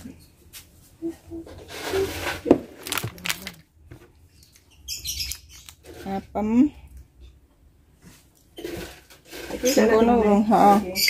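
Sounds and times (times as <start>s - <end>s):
paper rustling: 1.6s - 3.6s.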